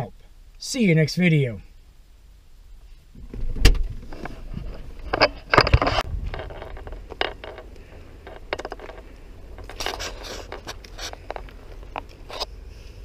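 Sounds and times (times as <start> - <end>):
car door clunk: 3.2 - 4.1.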